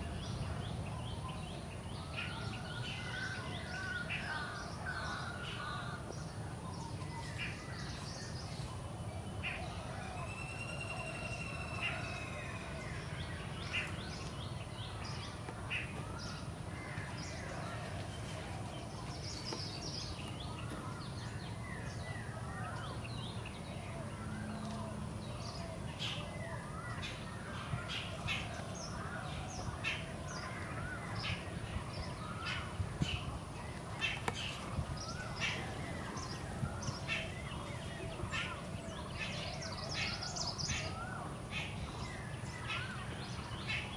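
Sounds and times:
birds calling and chirping: 0:00.0 - 0:43.9.

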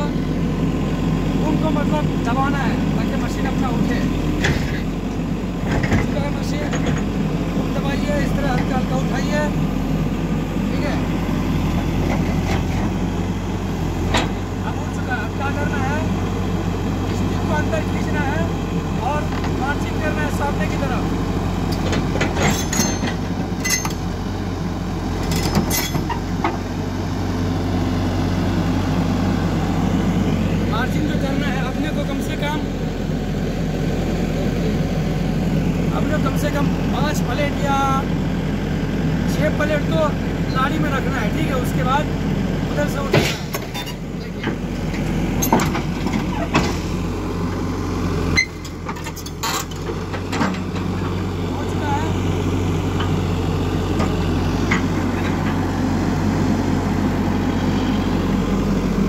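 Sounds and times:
excavator engine running: 0:00.0 - 0:59.0
steel tracks clanking: 0:21.7 - 0:24.0, 0:25.2 - 0:26.3, 0:43.0 - 0:47.0.

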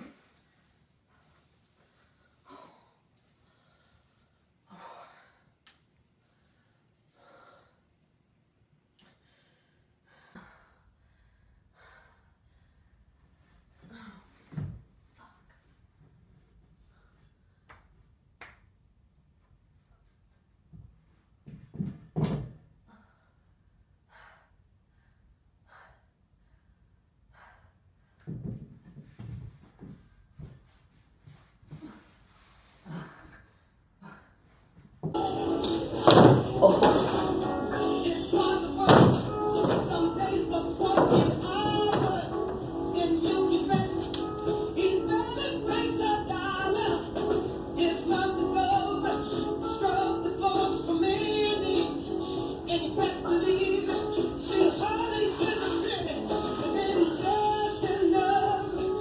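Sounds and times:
person breathing: 0:01.1 - 0:07.9, 0:09.0 - 0:14.5, 0:24.1 - 0:28.2
feet knocking on metal ladder: 0:35.0 - 0:42.7.

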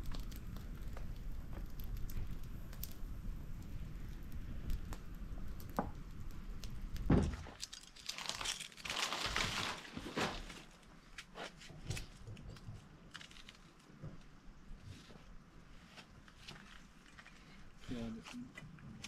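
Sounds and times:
dull thump: 0:07.1 - 0:07.5
vegetable skin crinkling and tearing: 0:07.5 - 0:12.1.

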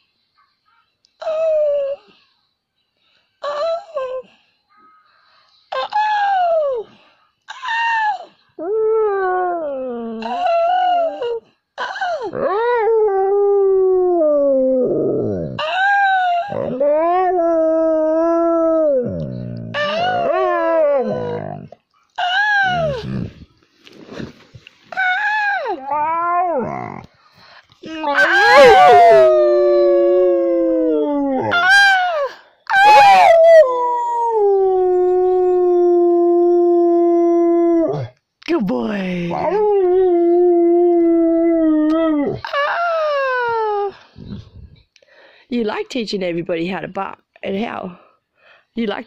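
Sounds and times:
dog howling: 0:12.4 - 0:21.8, 0:25.1 - 0:27.1, 0:28.1 - 0:38.1.

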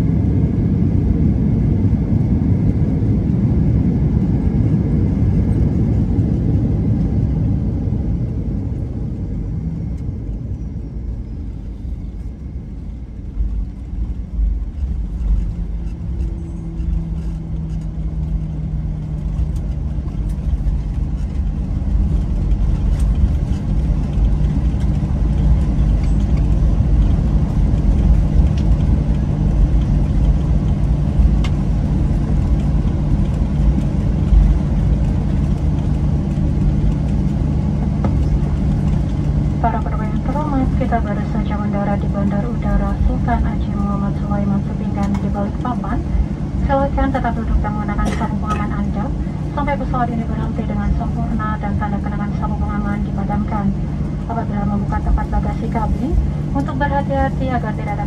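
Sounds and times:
aircraft engine rumble: 0:00.0 - 0:58.0
wheels rumbling on runway: 0:00.0 - 0:58.0.

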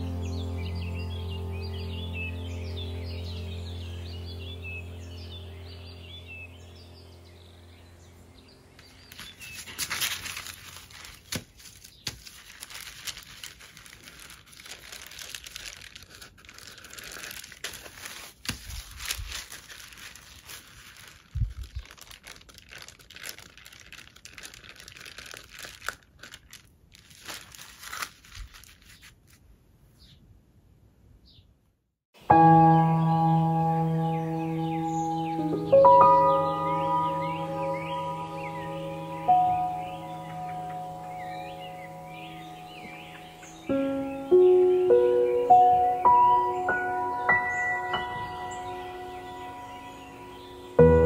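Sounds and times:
music: 0:00.0 - 0:07.6, 0:32.2 - 0:51.0
paper crackling and crinkling: 0:08.8 - 0:29.6.

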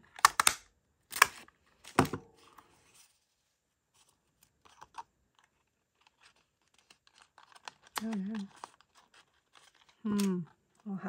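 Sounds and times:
paper rustling: 0:01.8 - 0:10.6.

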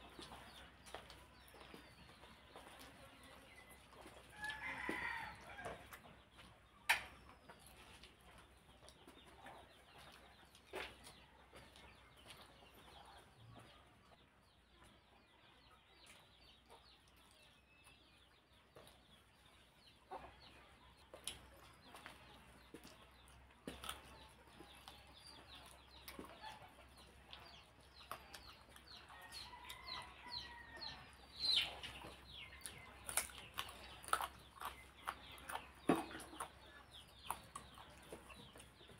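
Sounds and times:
wet chewing: 0:00.0 - 0:13.3, 0:16.0 - 0:38.9.

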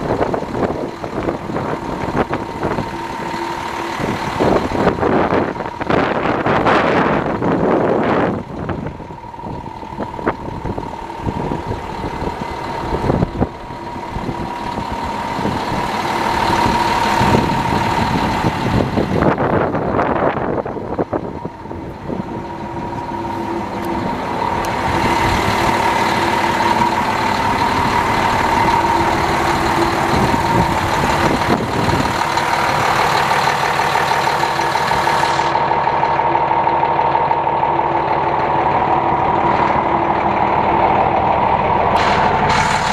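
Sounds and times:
constant whine: 0:00.0 - 0:42.9
diesel truck engine idling: 0:00.0 - 0:42.9
wind: 0:00.0 - 0:42.9.

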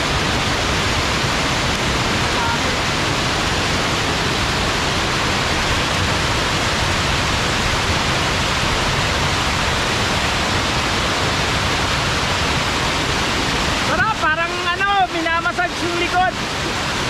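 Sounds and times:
small waterfall rushing over rocks: 0:00.0 - 0:17.0.

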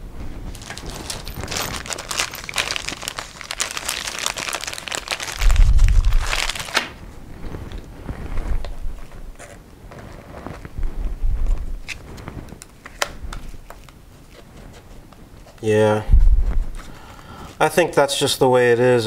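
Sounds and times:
crinkling handling noise: 0:00.1 - 0:17.7
low thump: 0:16.1 - 0:16.8.

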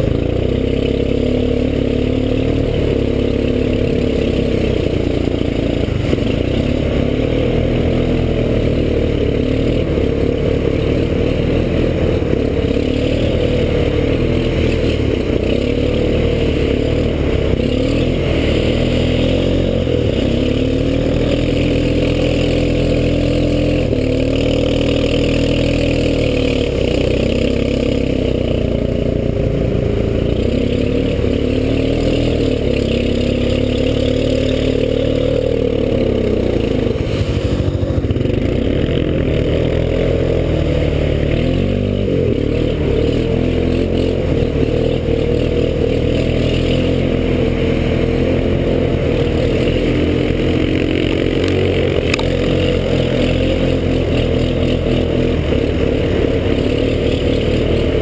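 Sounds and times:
atv engine revving: 0:00.0 - 0:58.0.

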